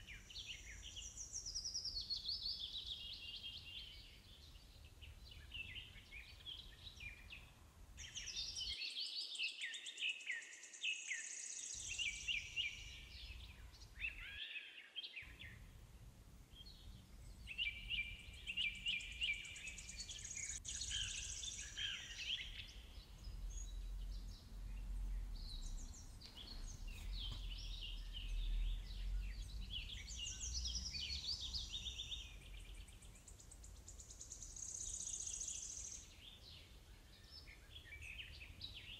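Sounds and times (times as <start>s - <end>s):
birds chirping and trilling: 0.0s - 38.9s
low rumble: 22.8s - 30.1s.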